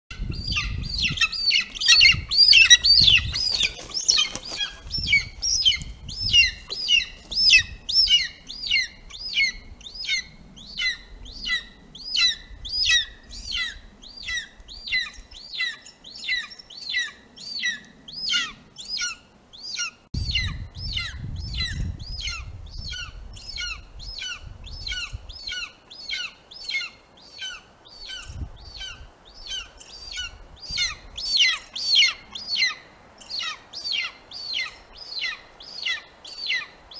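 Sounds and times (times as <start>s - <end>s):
eagle high chirping calls: 0.2s - 36.8s.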